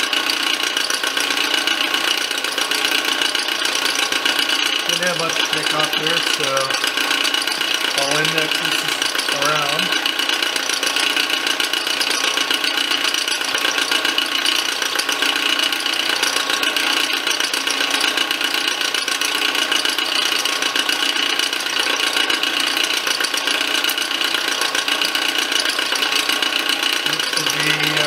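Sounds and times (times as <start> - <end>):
spindle drive whine: 1.1 - 16.8, 25.6 - 28.0
milling machine cutting metal: 2.8 - 10.8, 26.8 - 28.0.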